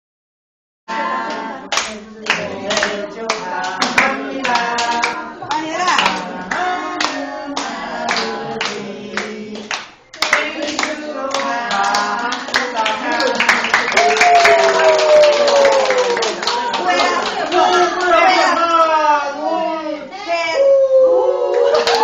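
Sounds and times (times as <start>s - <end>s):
group singing birthday song: 0.9s - 19.8s
people clapping in time: 1.7s - 18.4s, 21.7s - 22.0s.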